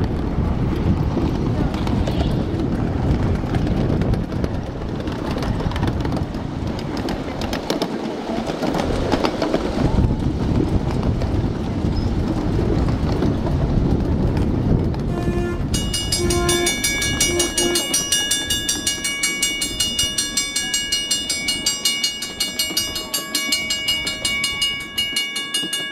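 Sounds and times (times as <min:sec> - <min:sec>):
clicking over rail joints: 0:00.0 - 0:25.9
miniature train wheels rumbling: 0:00.0 - 0:25.9
bell-like ringing tones: 0:15.3 - 0:25.9.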